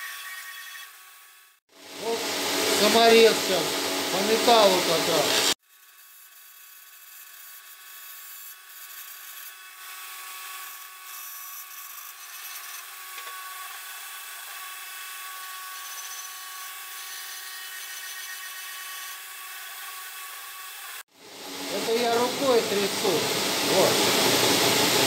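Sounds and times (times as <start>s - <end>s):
angle grinder whine: 1.8s - 5.6s, 11.9s - 13.8s, 20.3s - 25.0s
rotary burr grinding wood: 2.0s - 25.0s.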